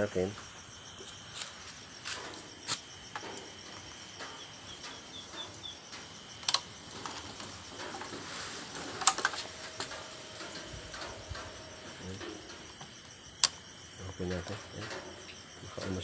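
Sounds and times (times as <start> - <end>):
crickets trilling: 0.0 - 16.0
handling clicks and knocks: 1.4 - 13.6.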